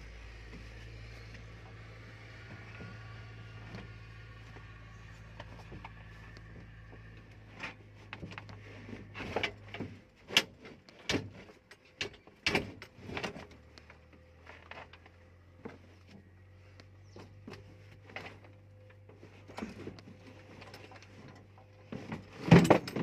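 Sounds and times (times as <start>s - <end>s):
low steady hum: 0.0s - 23.0s
sharp knocks and clatters: 5.3s - 13.5s.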